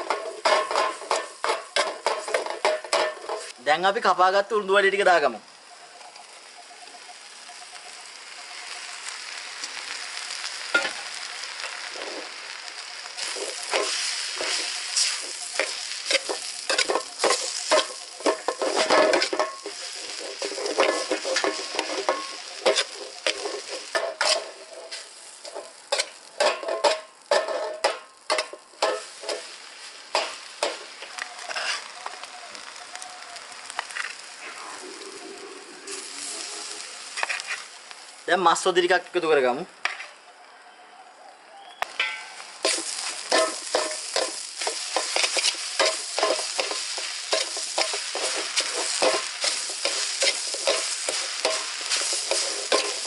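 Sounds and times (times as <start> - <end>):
food sizzling in a wok: 0.0 - 53.0
metal ladle scraping a pan: 13.2 - 30.8, 31.4 - 32.0, 36.0 - 37.7, 42.0 - 53.0.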